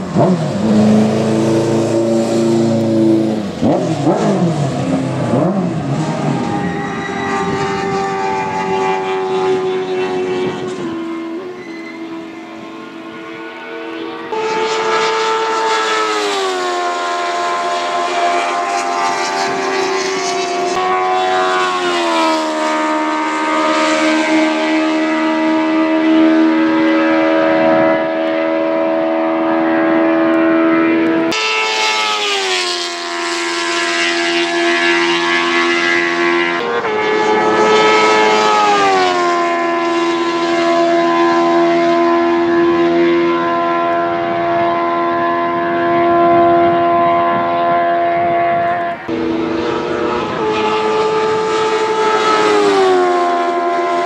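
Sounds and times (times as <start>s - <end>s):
race cars passing at speed: 0.0s - 54.0s.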